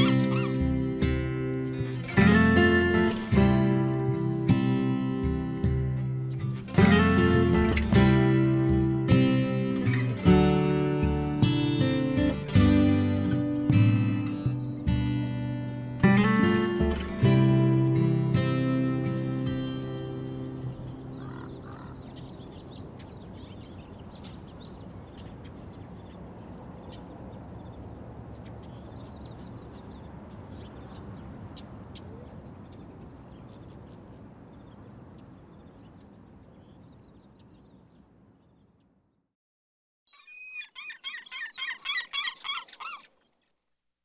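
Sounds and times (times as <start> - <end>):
rapidly pulsing warbling call: 0.0 - 0.7
birds chirping and twittering: 0.0 - 39.0, 40.1 - 43.6.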